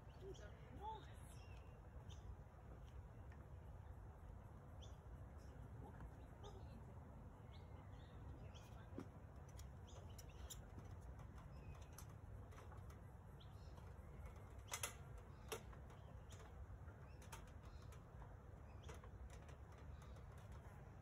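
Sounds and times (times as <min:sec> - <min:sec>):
light clicks and knocks: 0:08.7 - 0:21.0.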